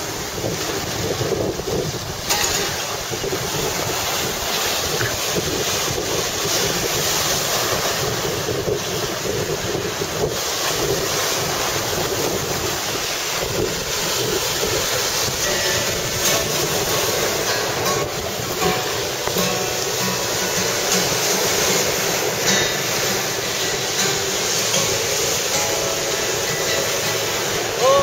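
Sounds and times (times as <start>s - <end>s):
surf washing onto rocky shore: 0.0s - 28.0s
wind buffeting microphone: 0.0s - 28.0s.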